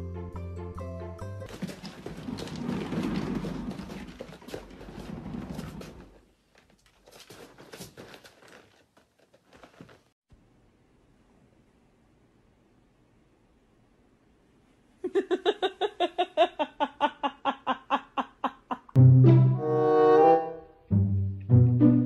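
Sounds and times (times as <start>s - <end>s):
exercise wheel rumbling and clattering: 1.4s - 10.1s.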